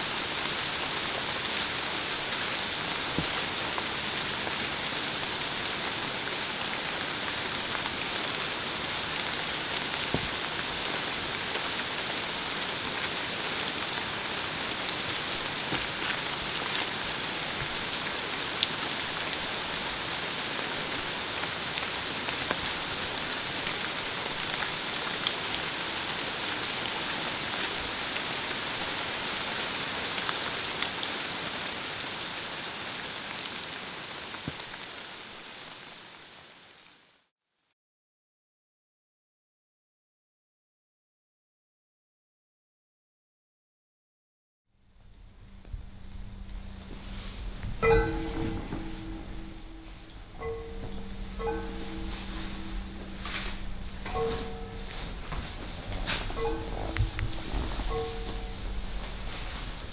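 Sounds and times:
steady hiss: 44.8 - 59.9.

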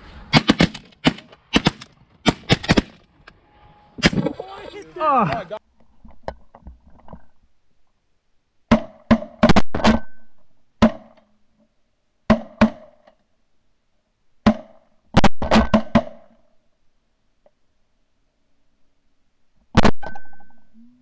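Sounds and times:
shotgun shots: 0.3 - 3.0.

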